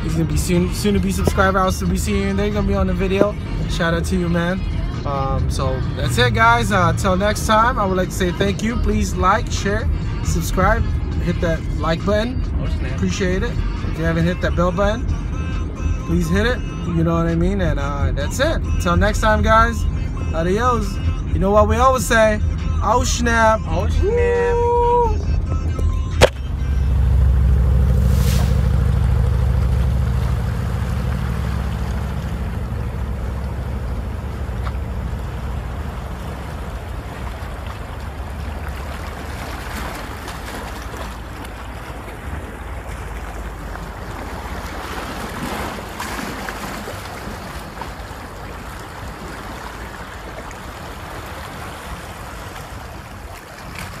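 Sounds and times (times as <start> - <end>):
lagoon water washing: 26.2 - 54.0.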